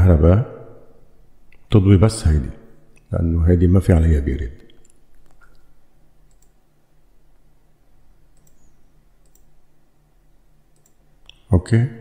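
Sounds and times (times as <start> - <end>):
low steady hum: 0.0 - 12.0
computer mouse clicks: 4.6 - 6.6, 8.3 - 9.6, 10.7 - 11.5.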